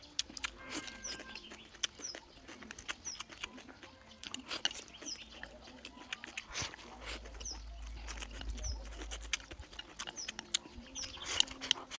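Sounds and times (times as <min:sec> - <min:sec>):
lip smacks: 0:00.0 - 0:12.0
person chewing food: 0:00.0 - 0:12.0.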